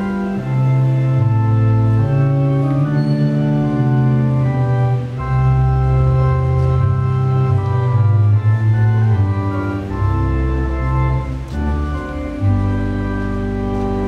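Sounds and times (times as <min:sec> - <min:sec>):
organ playing slow chords: 0:00.0 - 0:14.0.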